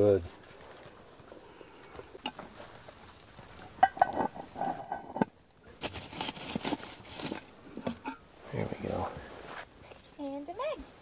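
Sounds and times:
lid scraping over coals: 0:03.4 - 0:09.7
metal lid clinking: 0:03.8 - 0:05.3.

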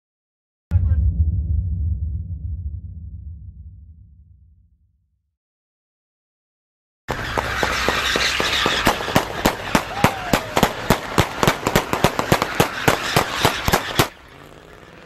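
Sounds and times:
gunshots in rapid string: 0:07.1 - 0:14.2.

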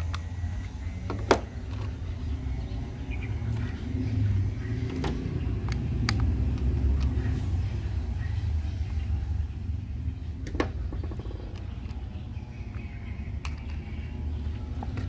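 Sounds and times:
plastic toy clicks and taps: 0:04.9 - 0:07.2, 0:12.7 - 0:13.9.

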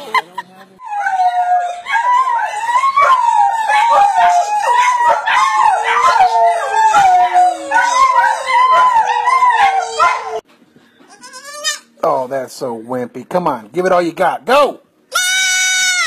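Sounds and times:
large dog howling: 0:00.9 - 0:10.4.

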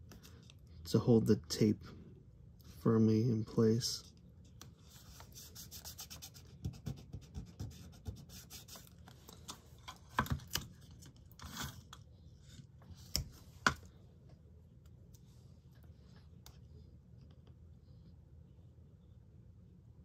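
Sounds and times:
fingers rubbing tape on paper: 0:04.9 - 0:09.0.

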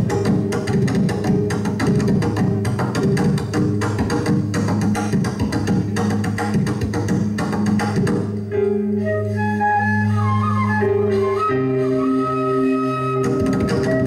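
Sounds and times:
drums: 0:00.0 - 0:08.4, 0:13.2 - 0:14.0
live band music: 0:00.0 - 0:14.0
flute-like melody: 0:08.5 - 0:14.0.

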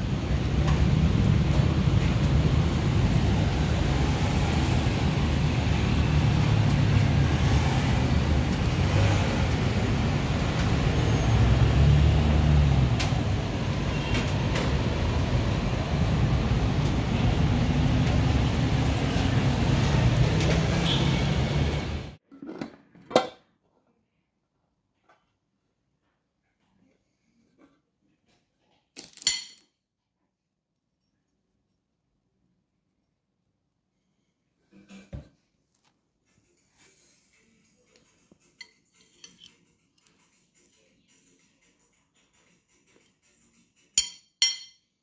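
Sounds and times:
street traffic rumble: 0:00.0 - 0:22.2.

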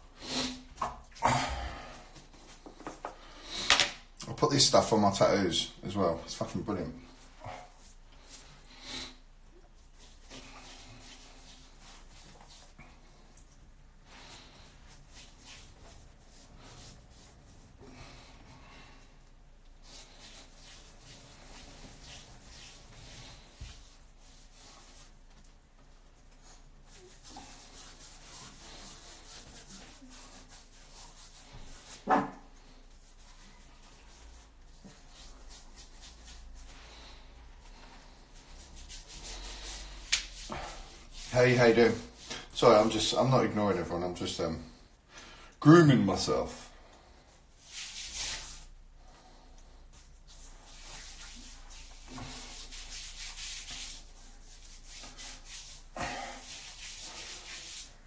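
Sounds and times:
hands rubbing cream into skin: 0:09.6 - 0:18.3, 0:19.6 - 0:32.0, 0:32.6 - 0:42.5, 0:47.6 - 0:58.0
dog barking: 0:32.1 - 0:32.4.

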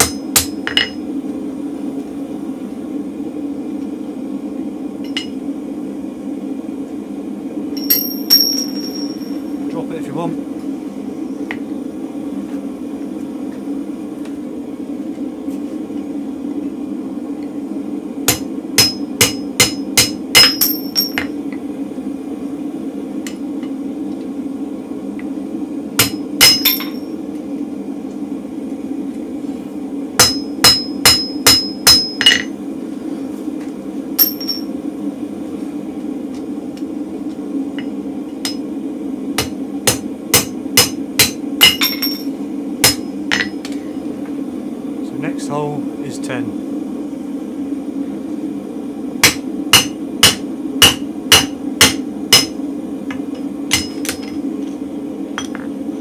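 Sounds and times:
hammer striking metal on anvil: 0:00.0 - 0:01.0, 0:05.0 - 0:05.4, 0:18.3 - 0:21.4, 0:26.0 - 0:27.0, 0:30.2 - 0:32.5, 0:34.2 - 0:34.7, 0:39.4 - 0:43.8, 0:49.2 - 0:52.6, 0:53.7 - 0:54.4
gas forge roaring: 0:00.0 - 0:56.0.

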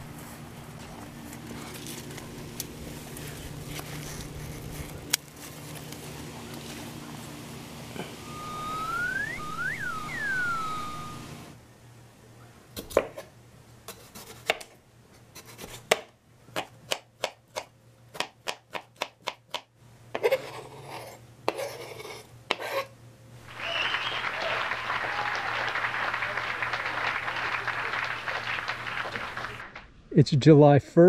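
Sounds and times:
knife chopping on cutting board: 0:13.9 - 0:14.7, 0:15.4 - 0:22.8
knife scraping a board: 0:13.9 - 0:16.0, 0:20.2 - 0:22.9.

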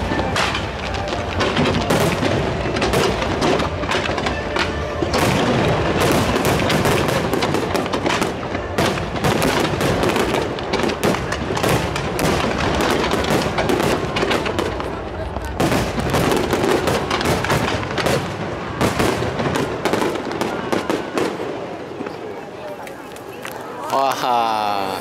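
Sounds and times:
fireworks bangs and crackling: 0:00.0 - 0:25.0.

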